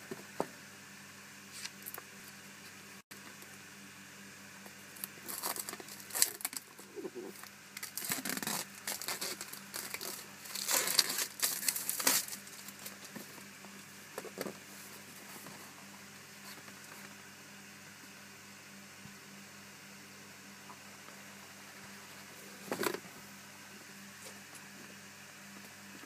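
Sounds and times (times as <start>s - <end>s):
plastic wrapping crinkling: 7.8s - 13.2s.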